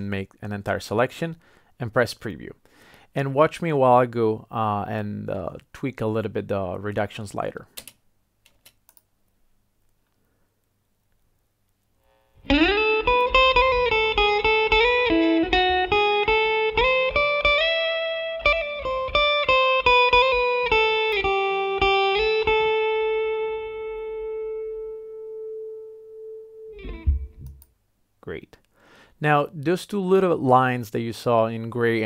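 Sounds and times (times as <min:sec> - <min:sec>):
electric guitar melody: 0:12.4 - 0:27.6.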